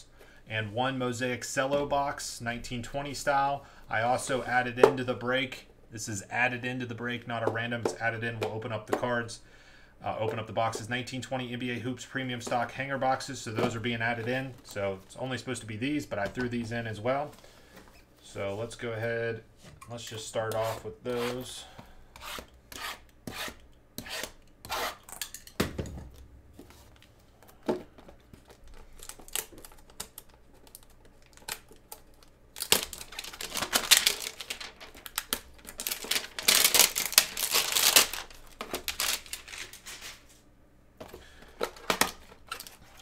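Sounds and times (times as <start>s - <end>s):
cardboard tearing: 32.6s - 40.2s.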